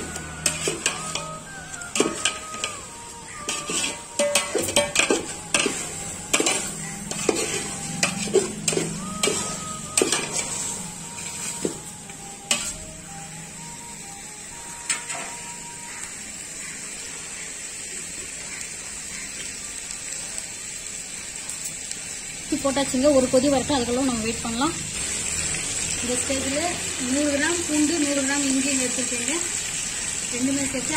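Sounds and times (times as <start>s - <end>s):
steady hiss of cooking: 0.0s - 30.9s
pot and ladle clinking and scraping: 0.4s - 11.9s, 12.5s - 12.8s.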